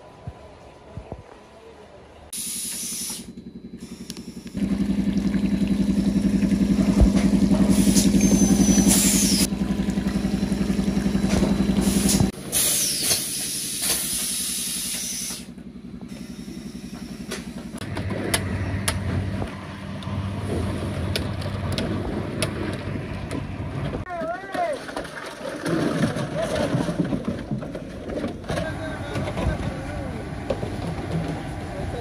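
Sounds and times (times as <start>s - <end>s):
low fluttering hum: 3.3s - 12.4s
water jetting from hose: 4.7s - 15.4s.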